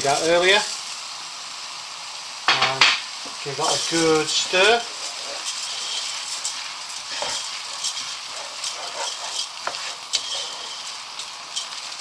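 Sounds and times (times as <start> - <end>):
rice sizzling in a pot: 0.0 - 12.0
wooden spoon scraping a pot: 3.6 - 12.0.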